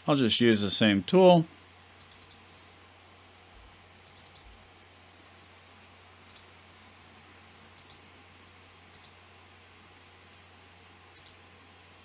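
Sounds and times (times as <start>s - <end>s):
low steady hum and hiss: 0.0s - 12.0s
computer mouse clicks: 2.0s - 2.4s, 4.0s - 4.6s, 6.2s - 6.5s, 7.7s - 8.0s, 8.9s - 9.2s, 11.1s - 11.4s.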